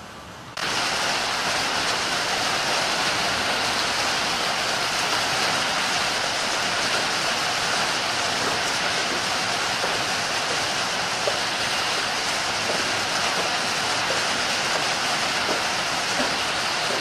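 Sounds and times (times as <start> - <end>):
rain falling: 0.5 - 17.0.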